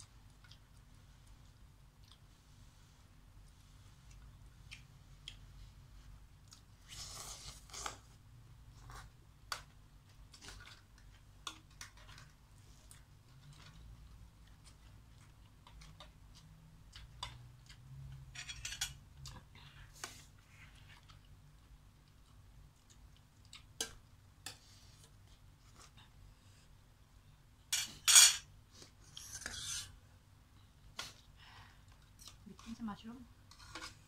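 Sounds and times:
chewing noodles: 0.2s - 2.5s
cutlery scraping a metal pot: 18.4s - 19.0s, 27.7s - 28.5s, 29.2s - 30.0s, 33.5s - 34.0s.

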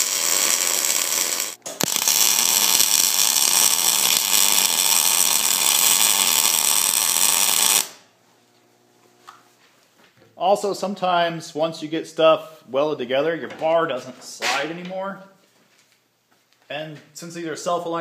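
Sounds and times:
welding arc crackling: 0.0s - 8.0s.

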